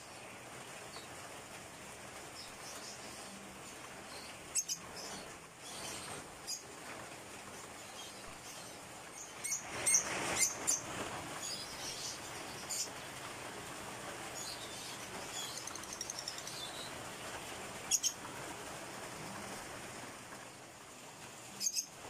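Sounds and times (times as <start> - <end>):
faint bird twittering: 2.4 - 6.7, 14.4 - 17.0, 17.9 - 18.2, 21.5 - 22.0
bird chirping: 4.1 - 6.7, 7.8 - 12.9, 14.4 - 17.0, 17.9 - 18.2, 21.6 - 22.0.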